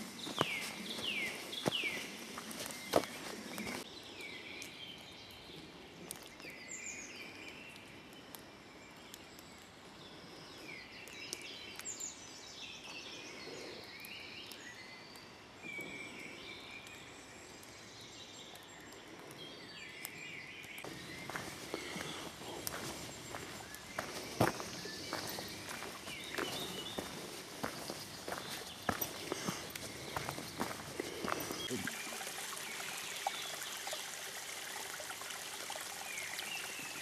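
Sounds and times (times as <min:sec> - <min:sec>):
faint outdoor hiss: 0:00.0 - 0:37.0
birds whistling: 0:20.8 - 0:31.8.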